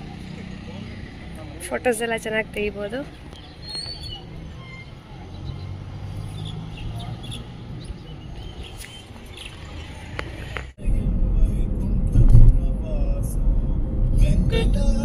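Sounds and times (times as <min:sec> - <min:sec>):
faint bird chirps: 0:03.4 - 0:09.6.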